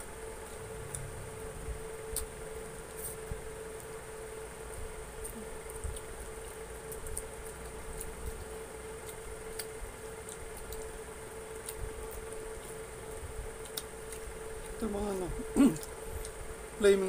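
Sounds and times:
steady hum: 0:00.0 - 0:17.0
chewing: 0:04.7 - 0:16.4.

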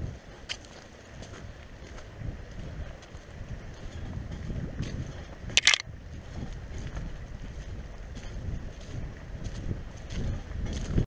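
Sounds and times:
wind buffeting microphone: 0:01.2 - 0:11.0
sharp click: 0:05.6 - 0:05.8.

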